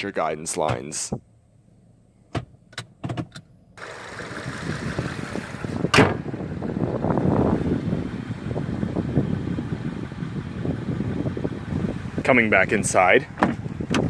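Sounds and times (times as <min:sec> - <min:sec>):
wind buffeting microphone: 0:04.4 - 0:14.0.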